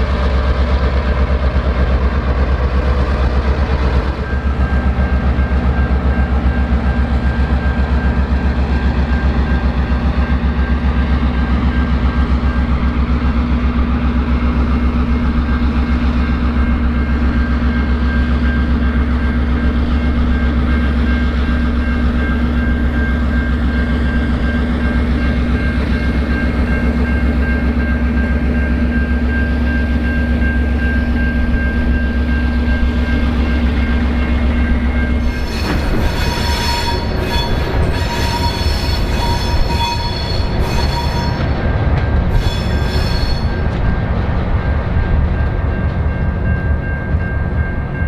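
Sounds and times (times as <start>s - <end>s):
diesel locomotive humming: 0.0s - 48.0s
train wheels squealing: 35.0s - 41.6s, 42.3s - 43.7s.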